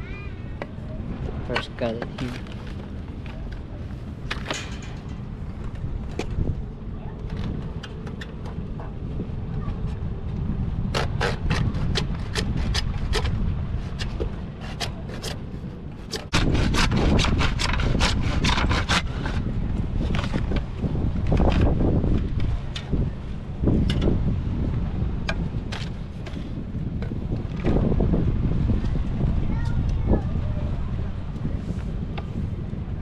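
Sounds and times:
wind rumble on microphone: 0.0 - 33.0
hand saw cutting plastic: 10.9 - 15.4, 16.1 - 19.5.

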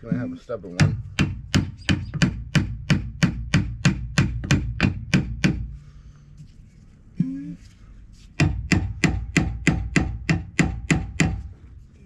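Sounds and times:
hammer striking metal: 8.4 - 11.4.

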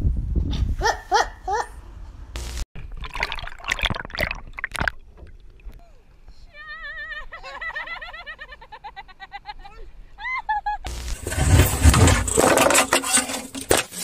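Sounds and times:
heavy water splashing: 2.8 - 5.7.

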